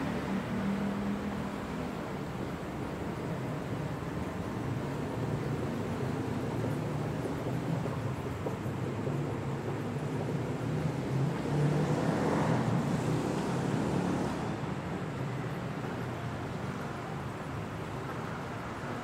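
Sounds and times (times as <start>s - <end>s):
city road traffic: 0.0s - 19.0s.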